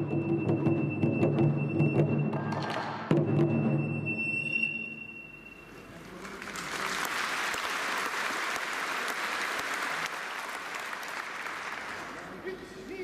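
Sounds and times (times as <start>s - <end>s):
audience applause: 6.0s - 12.4s.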